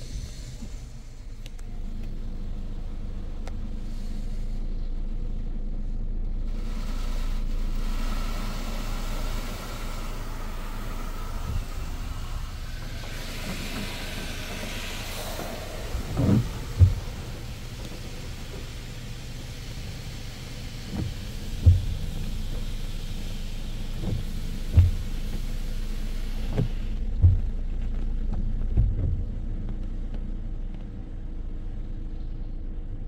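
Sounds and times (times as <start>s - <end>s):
water spray hissing against car: 0.0s - 30.0s
car wash low rumble: 0.0s - 33.0s
loud thumps: 12.7s - 18.7s, 20.9s - 22.4s, 24.0s - 25.4s, 26.6s - 27.6s.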